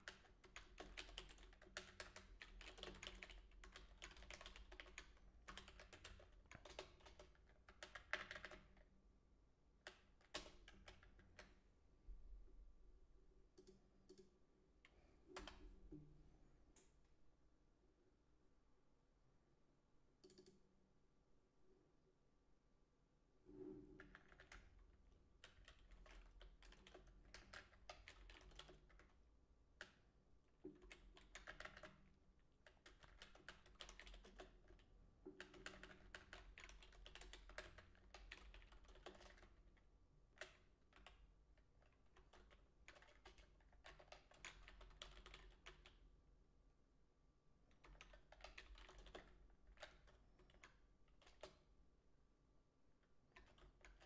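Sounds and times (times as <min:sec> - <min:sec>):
faint typing on keyboard: 0:00.0 - 0:09.0, 0:09.8 - 0:11.7, 0:13.5 - 0:17.1, 0:20.2 - 0:20.8, 0:23.4 - 0:46.1, 0:47.6 - 0:51.8, 0:53.0 - 0:54.0.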